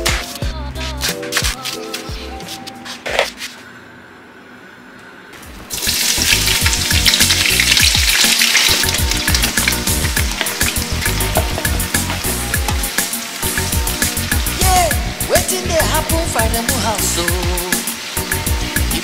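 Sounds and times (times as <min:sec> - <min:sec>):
onions sizzling in hot oil: 0:05.4 - 0:19.0.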